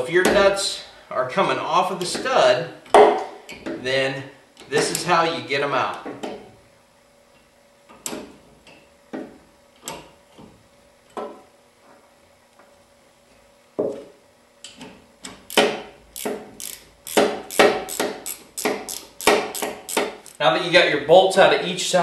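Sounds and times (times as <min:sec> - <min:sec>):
ratchet wrench clicking: 0:15.5 - 0:20.4.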